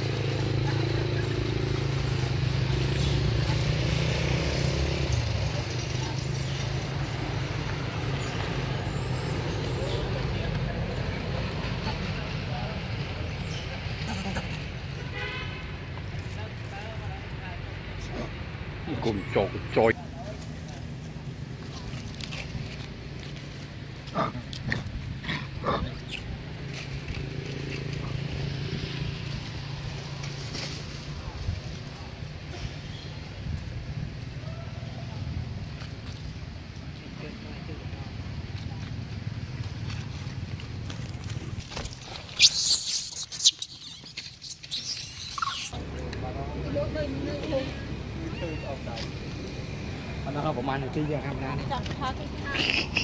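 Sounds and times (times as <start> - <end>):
engine humming: 37.7 - 53.0
monkeys calling: 42.0 - 45.8, 52.4 - 53.0.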